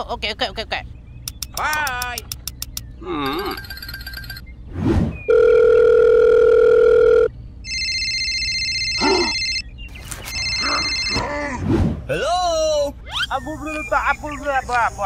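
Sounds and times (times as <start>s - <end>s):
high trilling phone ring: 3.3s - 4.4s, 5.3s - 9.6s, 10.2s - 11.2s
telephone dial tone: 5.3s - 9.6s, 10.3s - 11.2s.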